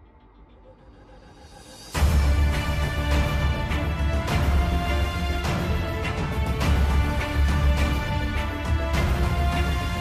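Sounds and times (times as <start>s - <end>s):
background music with strong bass: 0.0s - 10.0s.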